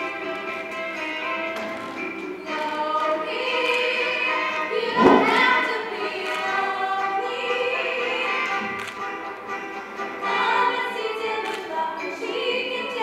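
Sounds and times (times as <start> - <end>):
musical accompaniment: 0.0 - 13.0
young voices singing together: 2.3 - 8.9, 10.2 - 13.0
sudden loud hit: 4.9 - 5.6.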